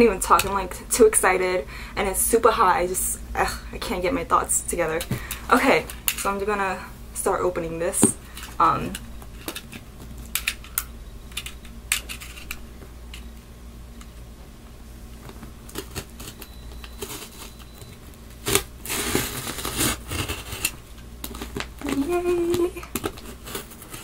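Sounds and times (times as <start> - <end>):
cardboard cutting and tearing: 18.4 - 24.0.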